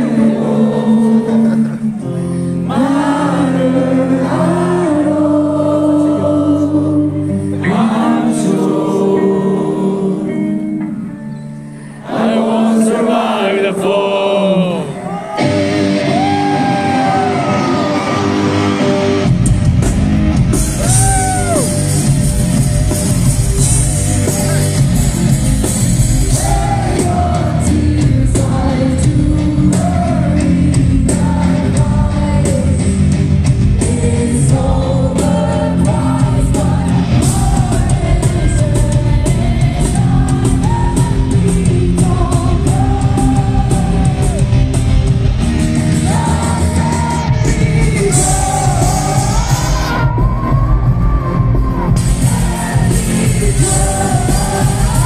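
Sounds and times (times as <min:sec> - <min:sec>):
woman singing lead vocal: 0:00.0 - 0:10.6, 0:26.3 - 0:44.6, 0:45.8 - 0:55.0
electric guitar: 0:00.0 - 0:12.5, 0:14.6 - 0:55.0
drums: 0:00.0 - 0:55.0
bass guitar: 0:14.4 - 0:55.0.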